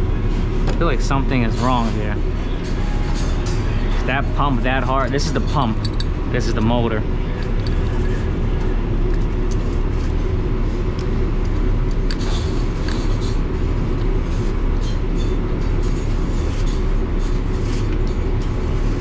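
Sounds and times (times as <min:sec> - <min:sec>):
low machinery drone: 0:00.0 - 0:19.0
pliers clicking and scraping metal: 0:05.2 - 0:06.7.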